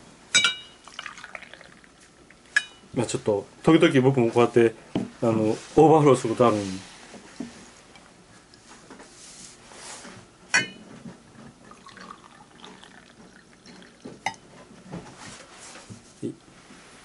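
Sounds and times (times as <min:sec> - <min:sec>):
porcelain cup clinking: 0:00.4 - 0:01.8, 0:11.7 - 0:14.4
coffee pouring into cup: 0:00.8 - 0:02.6, 0:11.6 - 0:14.4.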